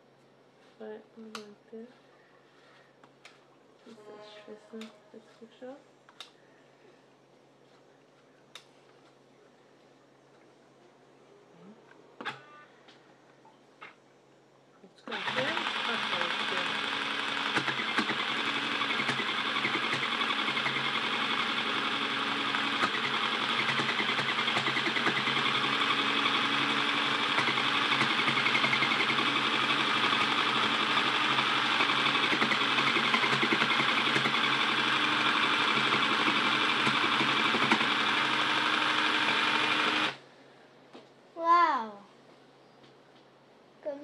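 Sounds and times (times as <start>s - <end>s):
sewing machine stitching: 15.1s - 40.2s.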